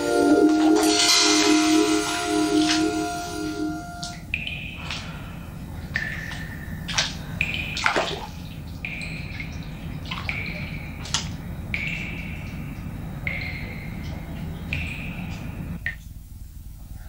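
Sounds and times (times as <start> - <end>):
water splashing and sloshing: 0.0 - 16.2.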